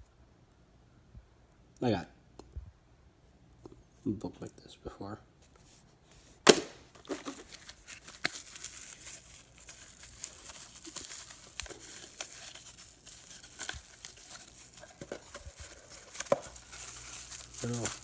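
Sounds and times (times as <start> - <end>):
packaging rustling and crinkling: 7.0 - 18.0.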